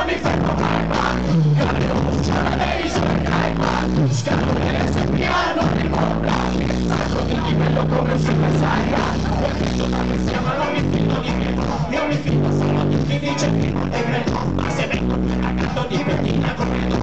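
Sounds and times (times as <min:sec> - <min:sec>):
live rock band with vocals: 0:00.0 - 0:17.0.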